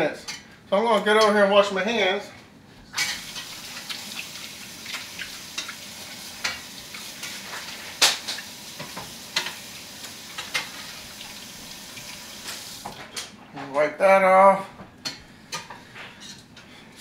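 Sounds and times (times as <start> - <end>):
gravy sizzling in a frying pan: 3.0 - 13.0.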